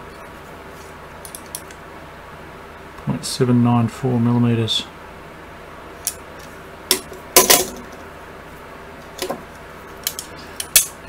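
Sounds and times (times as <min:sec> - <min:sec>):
metal parts clinking together: 0:01.2 - 0:01.7, 0:10.0 - 0:11.0.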